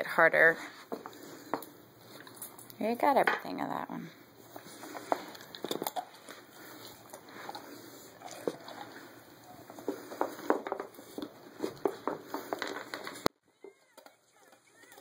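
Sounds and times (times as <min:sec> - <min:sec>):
wooden pieces knocking and clicking: 0:09.8 - 0:13.3.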